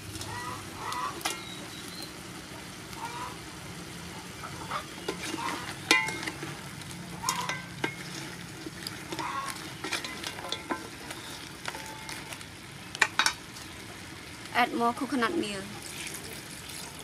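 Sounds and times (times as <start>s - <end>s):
curry sizzling: 0.0s - 17.0s
spoon and shells knocking pot: 5.8s - 6.4s.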